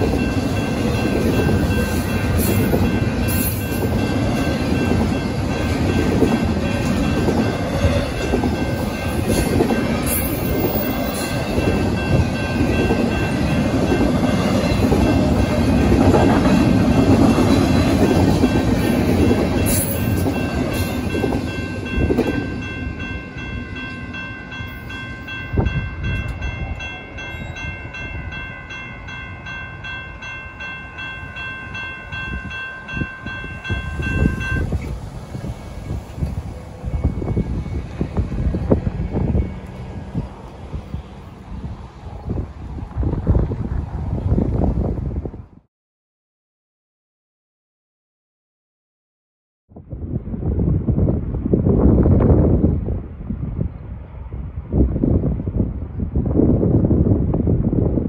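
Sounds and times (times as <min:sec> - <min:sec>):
crossing warning bell ringing: 0:00.0 - 0:41.0
freight train wheels rumbling: 0:00.0 - 0:45.6.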